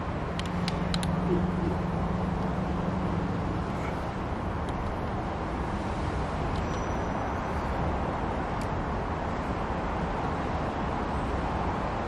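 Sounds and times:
light metal clicks: 0.3s - 1.2s.

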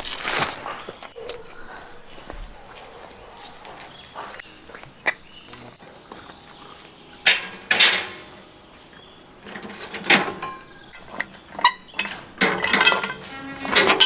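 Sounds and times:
metal lid clanking: 7.2s - 8.4s, 9.4s - 14.0s.

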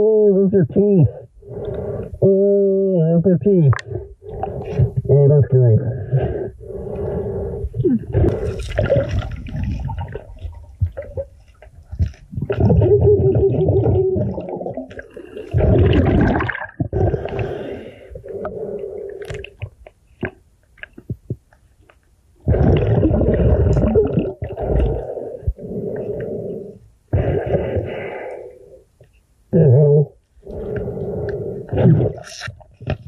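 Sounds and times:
underwater rushing gurgling water: 8.2s - 11.2s, 12.4s - 17.7s.

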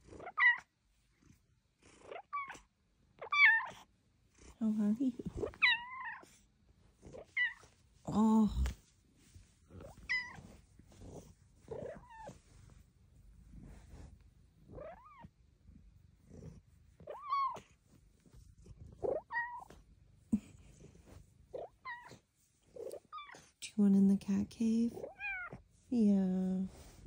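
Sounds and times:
cat chirping and meowing: 0.2s - 0.7s, 2.1s - 3.9s, 5.4s - 6.4s, 7.0s - 7.7s, 9.8s - 10.6s, 11.7s - 12.4s, 14.7s - 15.3s, 17.0s - 17.7s, 19.0s - 19.8s, 21.5s - 22.2s, 22.8s - 23.5s, 25.0s - 25.6s.

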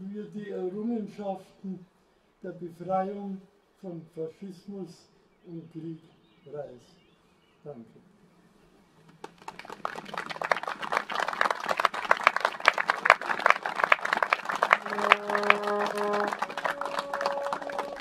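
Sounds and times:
crowd applauding: 9.2s - 18.0s
sustained instrument notes: 14.6s - 18.0s.

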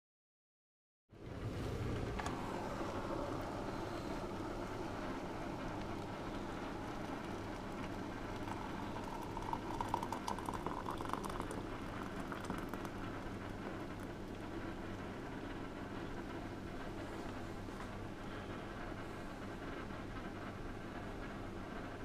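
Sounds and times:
water pouring into a mug: 2.3s - 15.0s.

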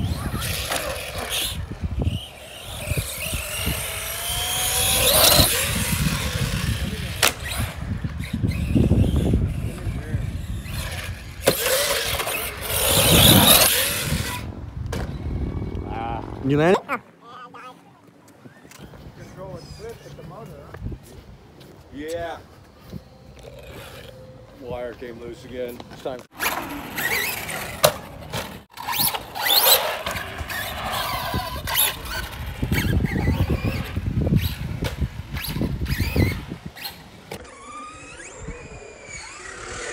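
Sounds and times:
electric motor whine: 0.0s - 14.5s.

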